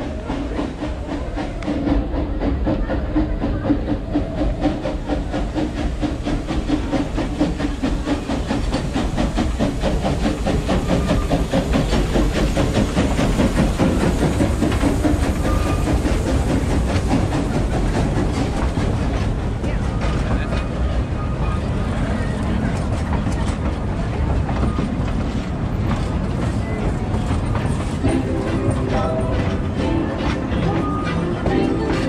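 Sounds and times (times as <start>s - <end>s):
coaches rumbling on rails: 0.0s - 32.0s
steam hissing: 0.0s - 32.0s
steam locomotive exhaust beats: 0.0s - 32.0s.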